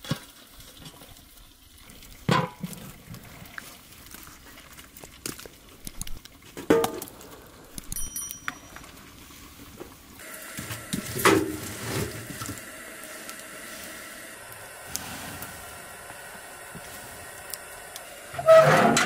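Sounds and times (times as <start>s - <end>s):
wood fire crackling: 0.0s - 19.0s
fire hissing: 10.2s - 19.0s.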